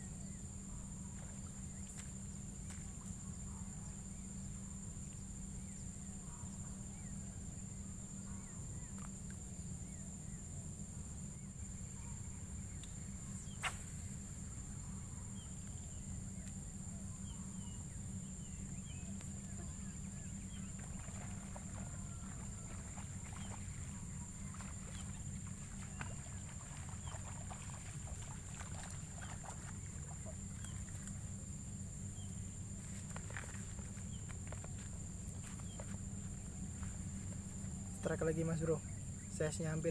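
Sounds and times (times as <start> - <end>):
steady low rumble: 0.0 - 38.2
faint chirps: 0.0 - 39.9
high insect whine: 0.0 - 39.9
sharp click: 13.6 - 14.0
splashes and rustles of fish: 20.7 - 31.3.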